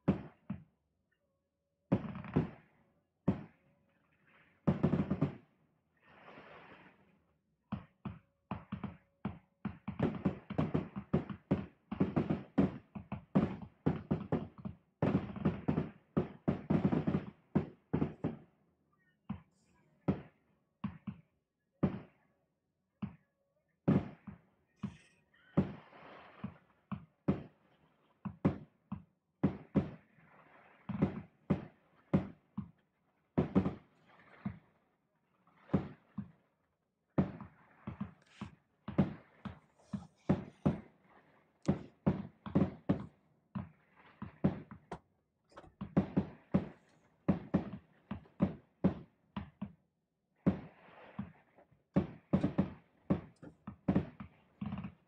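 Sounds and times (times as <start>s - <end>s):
aerial fireworks bangs: 4.7s - 5.4s, 9.9s - 18.4s, 33.4s - 33.8s, 41.7s - 43.1s, 52.0s - 54.3s.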